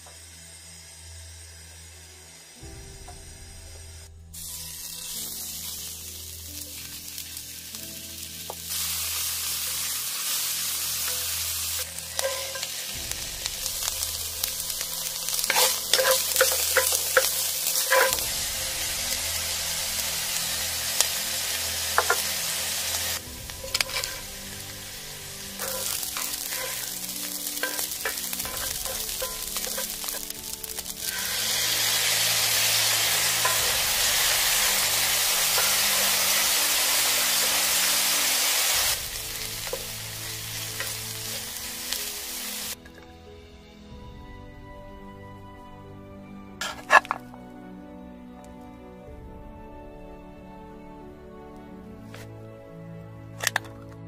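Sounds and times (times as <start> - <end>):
food sizzling in frying pan: 4.4 - 42.8
spatula scraping pan: 11.9 - 12.9, 15.3 - 18.3, 22.0 - 22.3, 23.6 - 24.4, 25.6 - 38.9, 46.6 - 47.3.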